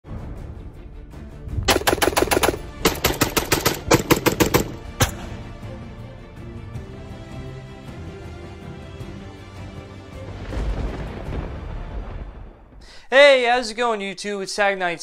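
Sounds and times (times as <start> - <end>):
background music: 0.0 - 13.9
rapid gunshots: 1.7 - 5.2.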